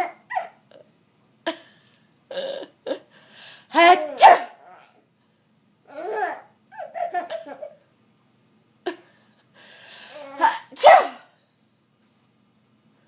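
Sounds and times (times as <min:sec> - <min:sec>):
baby laughing: 0:00.0 - 0:00.6, 0:05.9 - 0:07.9.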